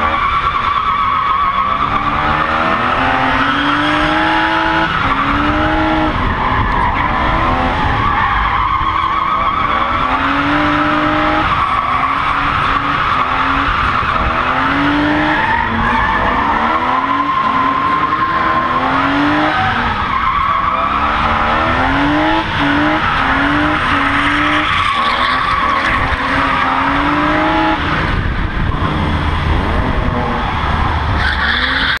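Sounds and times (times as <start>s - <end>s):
tyres squealing on tarmac: 0.0s - 27.7s, 31.2s - 32.0s
car engine revving: 0.0s - 32.0s.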